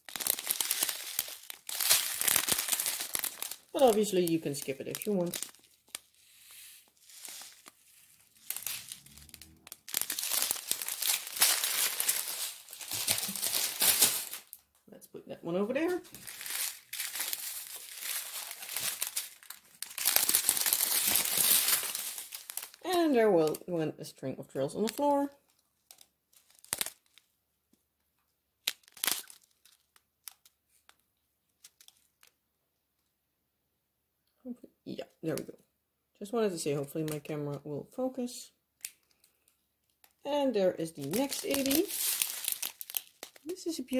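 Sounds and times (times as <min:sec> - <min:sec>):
plastic bags crinkling: 0:00.0 - 0:14.7, 0:15.7 - 0:23.6, 0:24.6 - 0:27.3, 0:28.6 - 0:31.0, 0:40.9 - 0:43.9.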